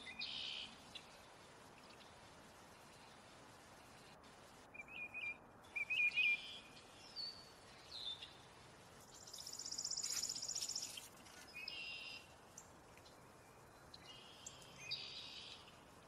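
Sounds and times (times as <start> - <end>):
bird chirps and whistles: 4.7 - 6.6.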